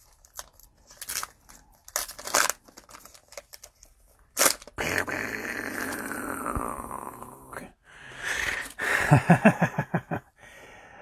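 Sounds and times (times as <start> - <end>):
cards and wrappers rustling: 0.0 - 4.8
sharp plastic crackle: 0.0 - 4.8.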